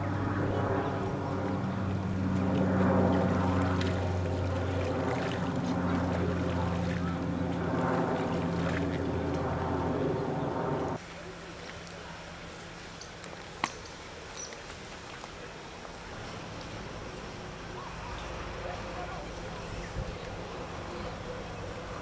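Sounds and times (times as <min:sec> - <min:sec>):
engine droning hum: 0:00.0 - 0:14.6, 0:15.2 - 0:22.0.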